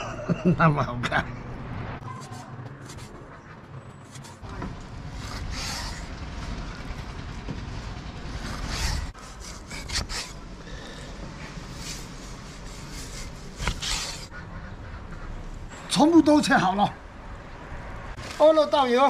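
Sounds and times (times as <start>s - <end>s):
cleaver scraping strokes: 2.0s - 6.2s, 8.4s - 14.4s
low steady rumble: 4.4s - 13.5s.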